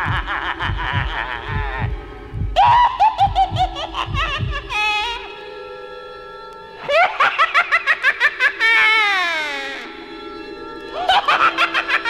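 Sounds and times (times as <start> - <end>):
high-pitched cackling laughter: 0.0 - 1.9, 2.6 - 5.2, 6.8 - 9.9, 11.0 - 12.0.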